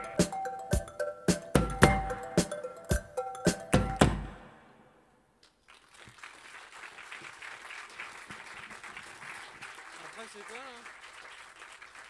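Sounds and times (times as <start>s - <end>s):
audience applause: 5.6s - 12.0s.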